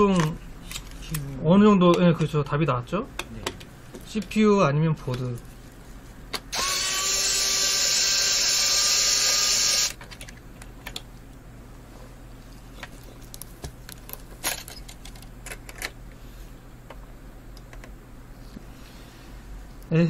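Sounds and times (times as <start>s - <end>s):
electric screwdriver whining: 6.5s - 10.0s
metal parts clicking and rattling: 14.0s - 15.9s.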